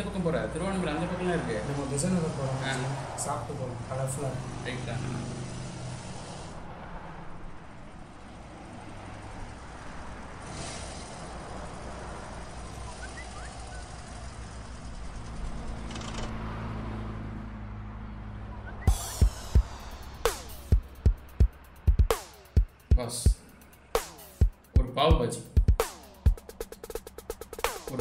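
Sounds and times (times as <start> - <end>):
street traffic: 0.0 - 28.0
motorcycle engine running: 9.0 - 16.3, 18.9 - 24.9
bass drum beats: 18.9 - 28.0.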